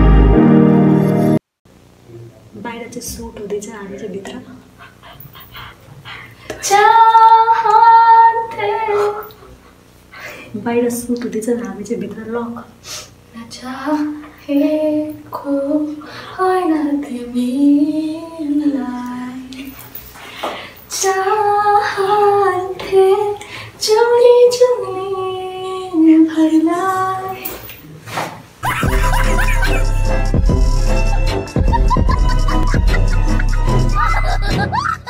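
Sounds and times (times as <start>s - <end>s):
women singing unaccompanied: 6.5s - 9.4s, 13.4s - 19.7s, 20.9s - 27.6s
women laughing: 28.6s - 30.0s, 31.0s - 35.0s
music with heavy bass beat: 28.7s - 34.6s.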